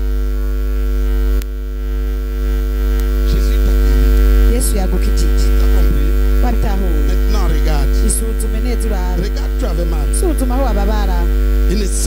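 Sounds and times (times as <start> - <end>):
electrical mains hum: 0.0 - 12.0
person speaking: 3.0 - 12.0.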